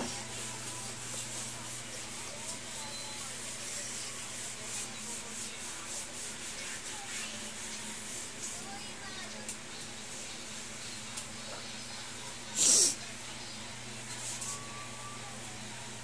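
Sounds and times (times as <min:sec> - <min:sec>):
cloth rag scrubbing plank floor: 0:00.0 - 0:08.8.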